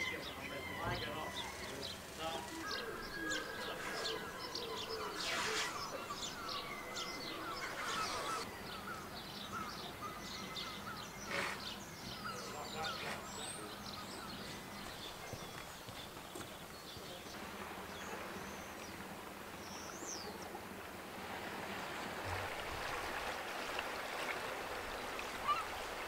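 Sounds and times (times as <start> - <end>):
faint bird calls: 0.0 - 17.2, 24.9 - 26.0
water washing: 21.2 - 26.0.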